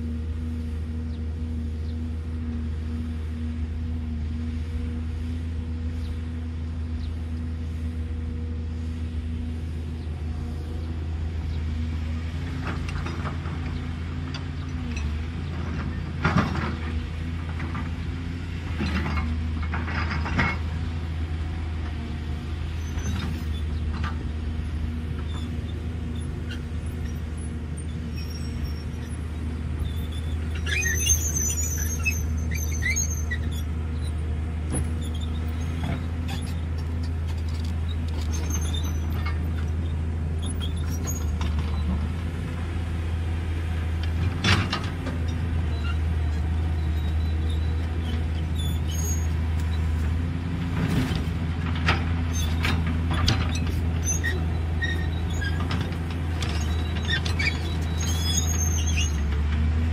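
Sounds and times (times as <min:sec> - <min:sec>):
excavator diesel engine running: 0:00.0 - 0:59.9
high-pitched machine squeaking: 0:29.8 - 0:34.1, 0:37.9 - 0:39.4, 0:46.8 - 0:49.9, 0:53.5 - 0:55.7, 0:56.5 - 0:59.3.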